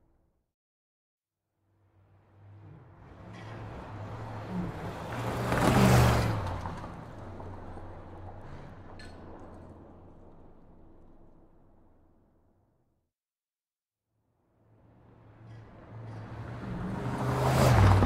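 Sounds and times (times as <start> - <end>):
road traffic: 1.8 - 12.4, 14.6 - 18.0
vehicle passing close: 2.4 - 11.0, 15.1 - 18.0.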